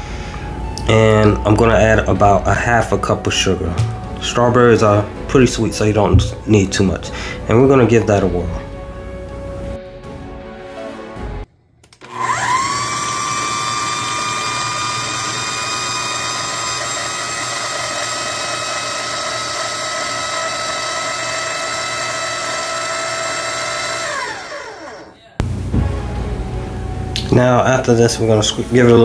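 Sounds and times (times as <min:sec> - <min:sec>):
food processor motor whine: 0:12.0 - 0:25.2.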